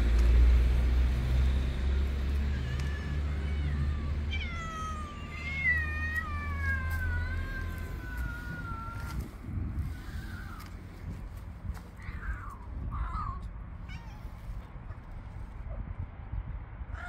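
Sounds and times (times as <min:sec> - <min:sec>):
low steady rumble: 0:00.0 - 0:17.0
cats meowing: 0:01.8 - 0:10.8, 0:11.9 - 0:15.2.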